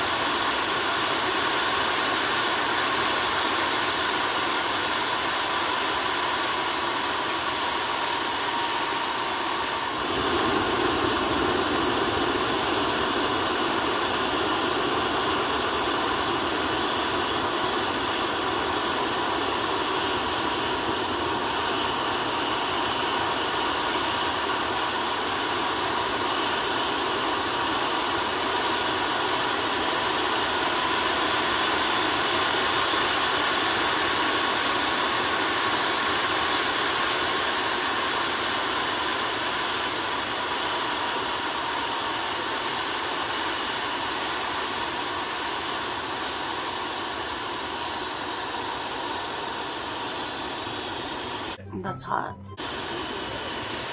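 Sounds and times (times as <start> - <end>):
turbocharger high whine: 0.0 - 28.6, 41.4 - 53.9
loud rush of air and fire: 9.9 - 17.9.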